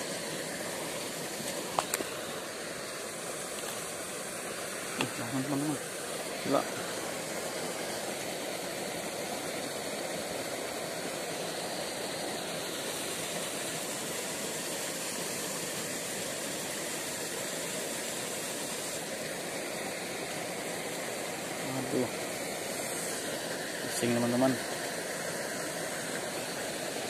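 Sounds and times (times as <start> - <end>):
outdoor background hiss: 0.0 - 27.0.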